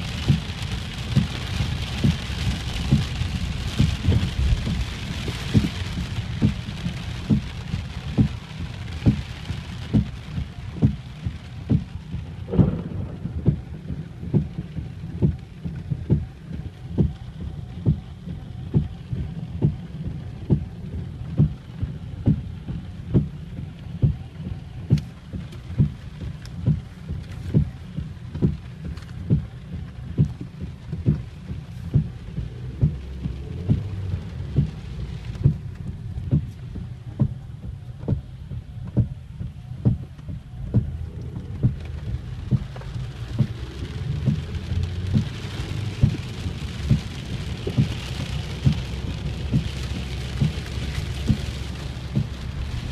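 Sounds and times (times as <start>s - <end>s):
heavy rain on car: 0.0s - 52.9s
low thump repeating: 12.4s - 16.3s.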